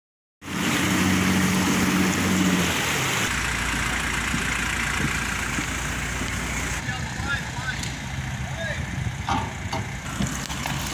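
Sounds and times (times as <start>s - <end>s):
rushing water: 0.4s - 7.1s, 9.9s - 10.9s
ferry engine running: 0.4s - 10.9s
wind: 0.4s - 10.9s.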